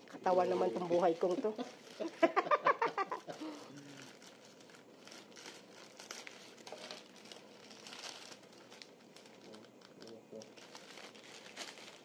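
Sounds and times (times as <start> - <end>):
plastic mailer bag crinkling: 0.3 - 12.0.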